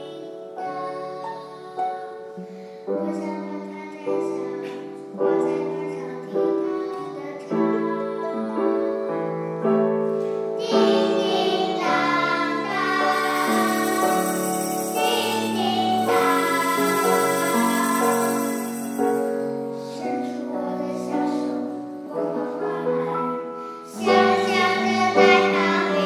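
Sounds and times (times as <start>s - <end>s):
girl singing: 0.0s - 9.9s, 10.5s - 26.0s
small band chords: 9.8s - 20.2s, 23.3s - 26.0s
children singing: 10.6s - 26.0s.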